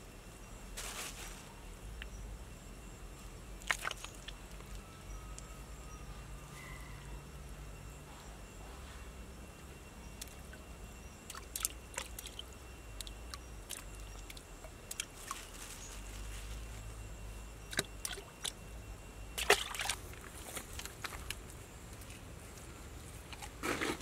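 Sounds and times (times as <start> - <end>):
hands squishing wet mud: 3.6 - 4.4, 11.3 - 15.4, 19.4 - 20.0.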